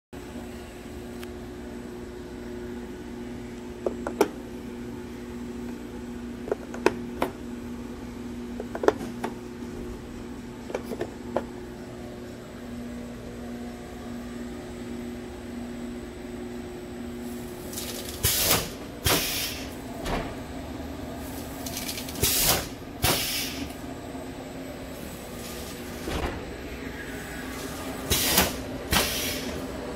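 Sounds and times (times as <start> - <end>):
machine hum: 0.2 - 29.9
shrink-wrapping machine air bursts: 17.2 - 19.8, 21.2 - 23.7, 27.5 - 29.7.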